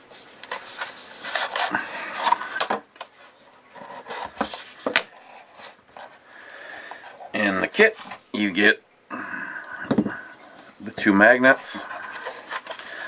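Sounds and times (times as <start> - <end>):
cardboard box rustling and scraping: 0.2 - 6.2.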